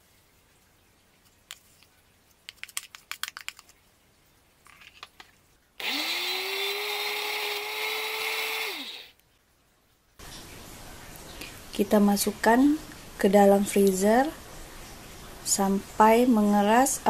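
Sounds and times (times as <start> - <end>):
electric blender whining: 5.8 - 9.1.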